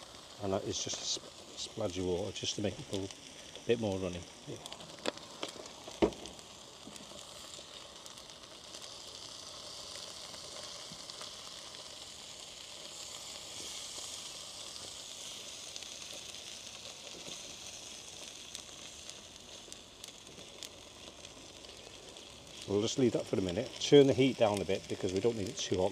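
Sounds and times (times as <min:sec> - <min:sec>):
food sizzling on a griddle: 0:00.0 - 0:25.9
water boiling off in pan: 0:00.0 - 0:25.9.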